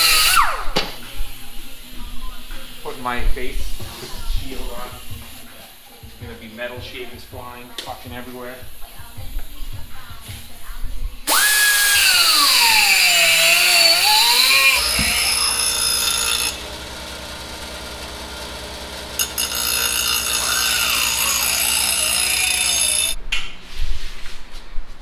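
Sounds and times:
die grinder grinding metal: 0:00.0 - 0:00.7, 0:11.3 - 0:23.2.

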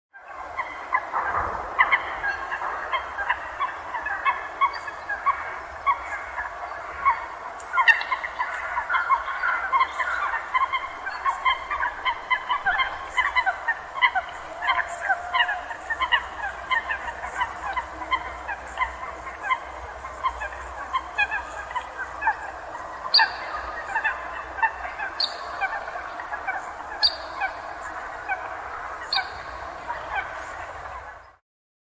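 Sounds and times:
flock of water birds calling: 0:00.2 - 0:31.4
sharp high-pitched bird calls: 0:07.0 - 0:30.7.

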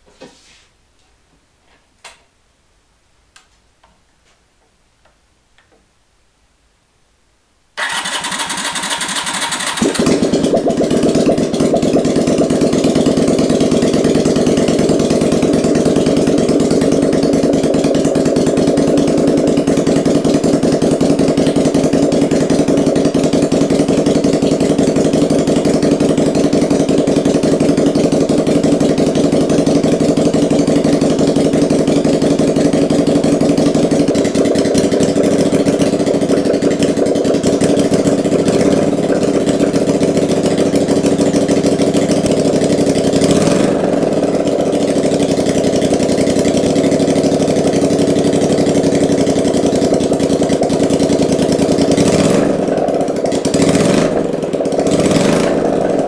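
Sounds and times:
electric starter cranking: 0:07.8 - 0:10.6
motorcycle engine running: 0:07.8 - 0:56.0.

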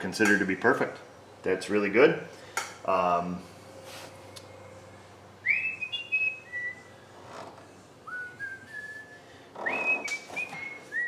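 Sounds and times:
person whistling a tune: 0:05.5 - 0:06.9, 0:08.0 - 0:11.0.

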